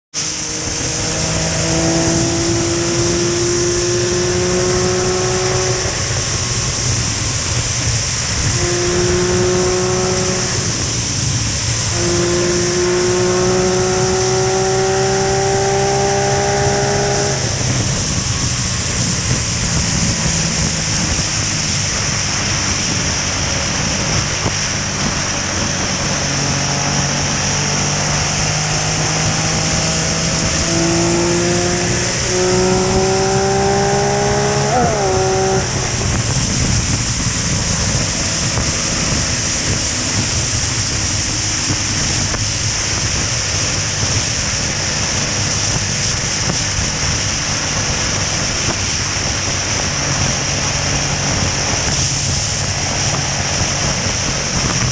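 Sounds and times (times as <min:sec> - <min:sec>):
motorcycle engine cruising: 0:00.1 - 0:54.9
wind and road noise: 0:00.1 - 0:54.9.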